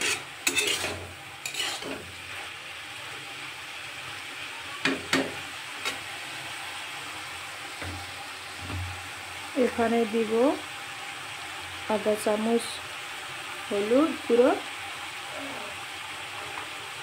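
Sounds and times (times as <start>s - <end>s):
metal spatula scraping a pan: 0.0s - 2.6s, 5.1s - 6.1s
frying sizzle: 0.0s - 17.0s.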